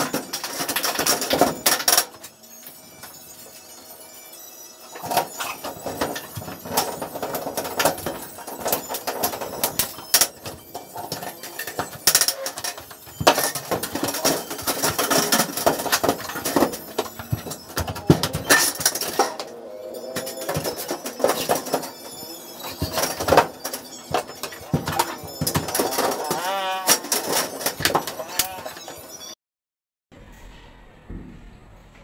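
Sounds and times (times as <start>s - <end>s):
metal studs clanking and knocking: 0.0s - 2.4s, 4.9s - 29.3s.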